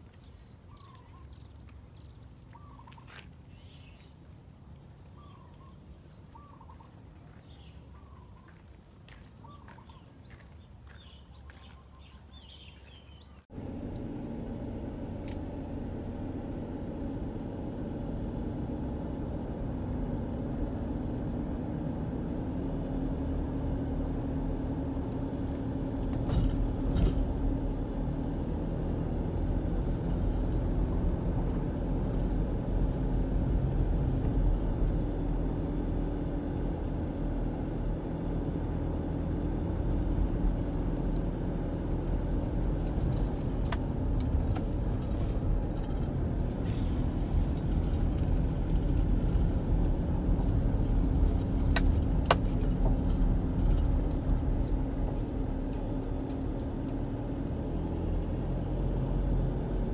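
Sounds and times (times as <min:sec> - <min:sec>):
car engine and tyre rumble: 0:00.0 - 0:59.9
light clicks and rattles: 0:29.9 - 0:36.7, 0:39.9 - 0:58.0.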